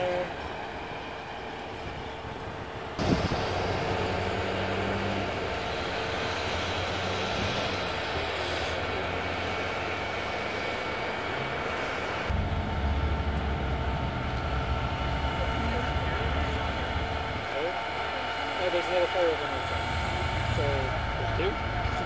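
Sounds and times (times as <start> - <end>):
fire engine running: 0.0 - 22.0
steady whine: 0.0 - 22.0
rush of noise: 1.8 - 22.0
deep rumble: 11.2 - 17.6.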